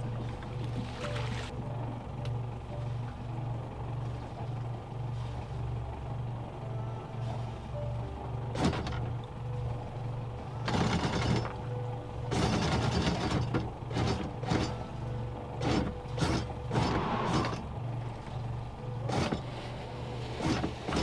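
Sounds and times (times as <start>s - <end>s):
windlass motor hum: 0.0s - 21.0s
anchor chain clanking: 10.6s - 11.6s, 12.3s - 14.8s.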